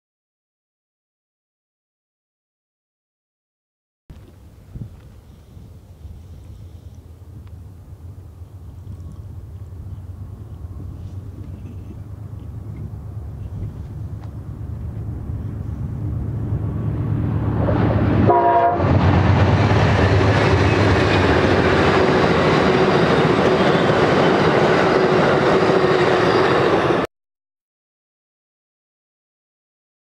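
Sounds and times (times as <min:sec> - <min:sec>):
wheels clacking on rails: 0:04.1 - 0:16.8, 0:18.8 - 0:27.1
train rumble: 0:04.1 - 0:27.1
train horn: 0:18.2 - 0:19.1.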